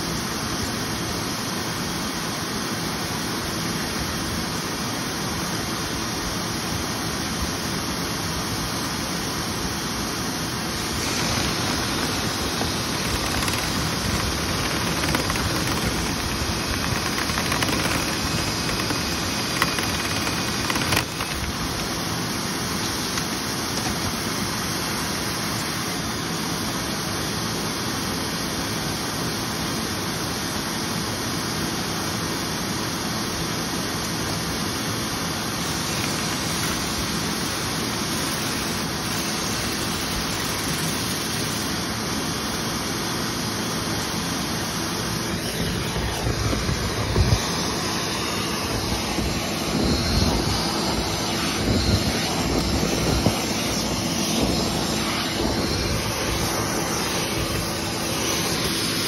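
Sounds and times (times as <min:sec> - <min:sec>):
vacuum running with rushing roar: 0:00.0 - 0:59.0
vacuum hose bumping: 0:10.8 - 0:22.0.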